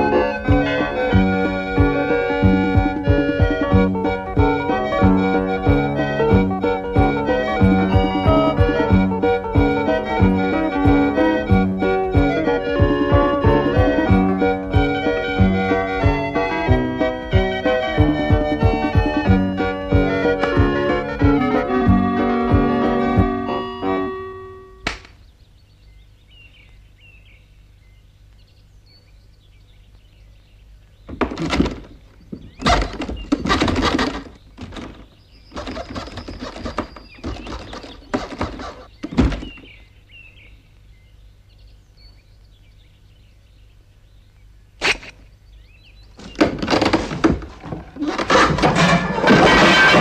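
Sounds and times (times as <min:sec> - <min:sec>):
sharp click: 0:24.8 - 0:25.2, 0:44.8 - 0:45.2
cartoon knocks and clattering: 0:31.1 - 0:39.7, 0:46.2 - 0:50.0
faint bird chirps: 0:34.1 - 0:46.4.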